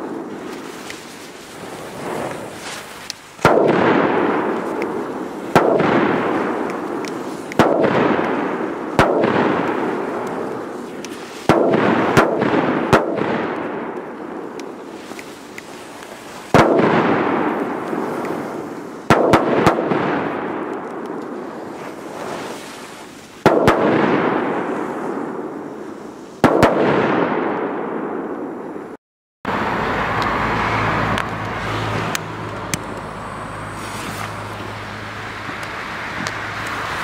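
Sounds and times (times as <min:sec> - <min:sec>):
firecrackers banging with echo: 0:00.0 - 0:29.0
road traffic: 0:29.5 - 0:37.0.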